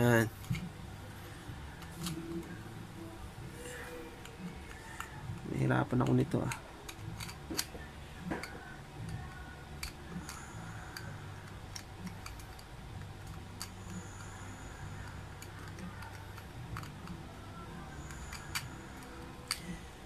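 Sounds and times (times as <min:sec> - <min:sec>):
low steady hum: 0:00.0 - 0:20.0
plastic puzzle clicking: 0:06.0 - 0:07.8, 0:08.4 - 0:13.7, 0:15.0 - 0:17.2, 0:18.1 - 0:18.7, 0:19.4 - 0:19.7.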